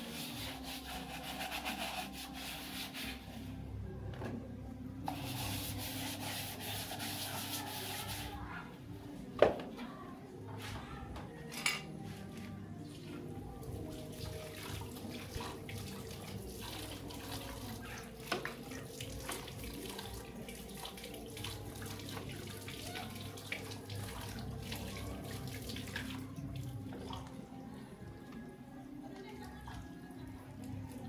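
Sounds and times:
water running and splashing: 13.6 - 27.4.

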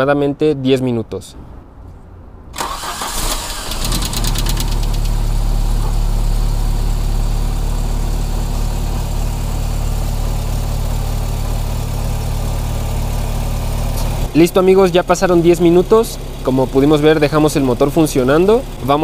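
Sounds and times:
car engine starting and idling: 2.5 - 19.0.

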